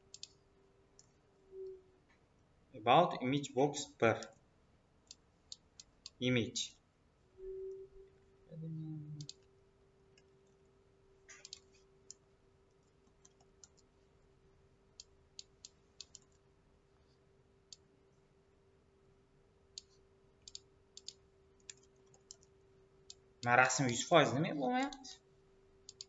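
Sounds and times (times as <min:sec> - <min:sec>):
faint steady tone: 0:00.0 - 0:26.0
mouse clicks: 0:00.1 - 0:00.4, 0:09.2 - 0:09.5, 0:11.3 - 0:12.2, 0:19.8 - 0:22.5.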